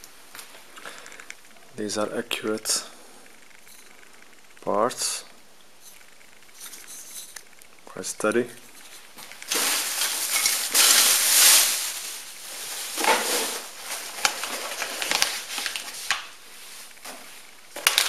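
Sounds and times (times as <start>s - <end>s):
plastic bag rustling: 8.7s - 18.0s
packing peanuts crackling: 8.9s - 17.0s, 17.7s - 18.0s.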